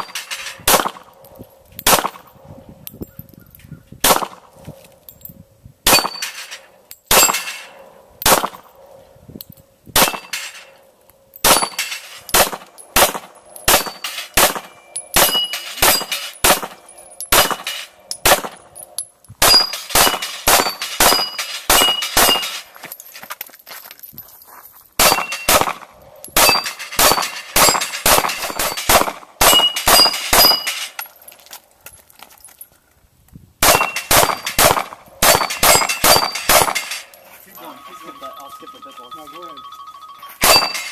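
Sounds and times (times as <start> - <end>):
pistol shots: 0.0 - 1.1, 1.8 - 2.3, 4.0 - 4.5, 5.8 - 6.3, 7.1 - 8.7, 10.0 - 10.5, 11.4 - 18.6, 19.4 - 22.6, 25.0 - 30.9, 33.6 - 37.0, 40.4 - 40.9
steel plates ringing: 5.9 - 7.9, 10.0 - 22.8, 25.0 - 31.2, 33.7 - 40.9.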